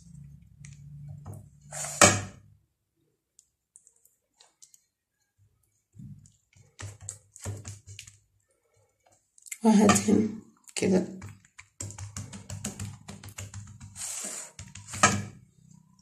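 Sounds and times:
dough taps and clicks on tray: 0:06.1 - 0:08.1, 0:11.1 - 0:15.4
soft pats on dough: 0:11.1 - 0:15.0.

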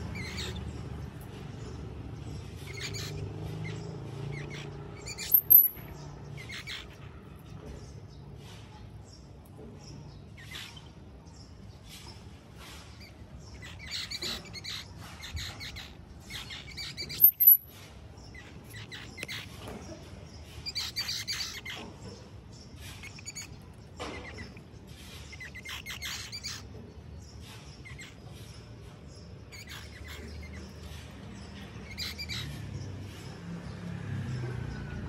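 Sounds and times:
sharp high squeak: 0:05.0 - 0:05.9, 0:16.4 - 0:17.8
short high chirps: 0:05.3 - 0:05.8, 0:17.2 - 0:17.7.

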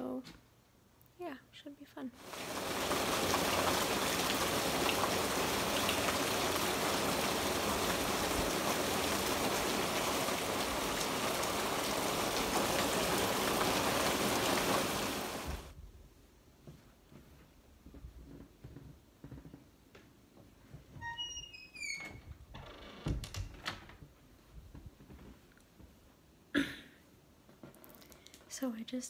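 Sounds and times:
heavy rain: 0:02.2 - 0:15.8.

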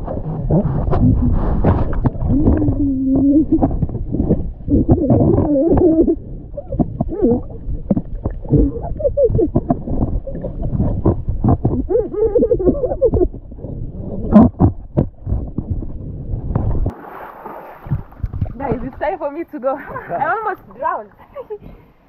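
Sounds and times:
underwater rumble of moving water: 0:00.0 - 0:21.3
small underwater knocks and pops: 0:14.3 - 0:17.0, 0:17.8 - 0:18.9.

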